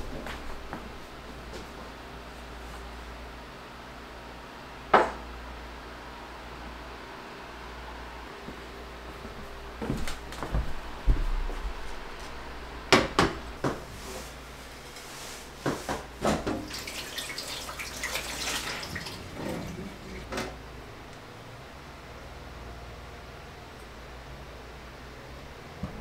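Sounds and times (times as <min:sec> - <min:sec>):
kitchen tap running into sink: 0:16.2 - 0:20.2.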